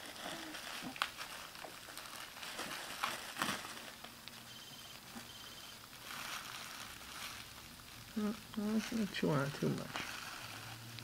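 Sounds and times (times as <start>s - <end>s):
bubble wrap crinkling: 0.0s - 11.0s.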